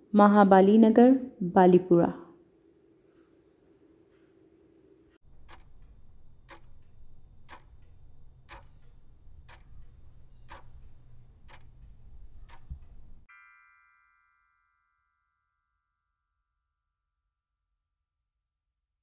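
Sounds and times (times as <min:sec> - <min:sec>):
timer ticking: 0:05.2 - 0:13.3
multi-tone chime: 0:13.3 - 0:16.1.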